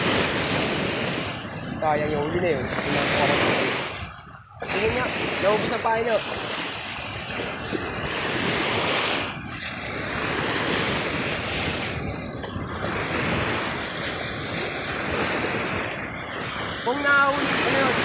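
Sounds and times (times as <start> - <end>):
waves lapping against shore: 0.0 - 18.0
wind buffeting microphone: 0.0 - 18.0.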